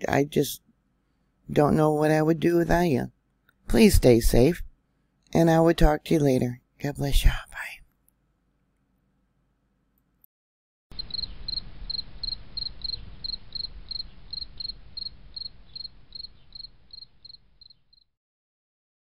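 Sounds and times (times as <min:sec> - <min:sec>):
insect chirping: 0:10.9 - 0:18.1.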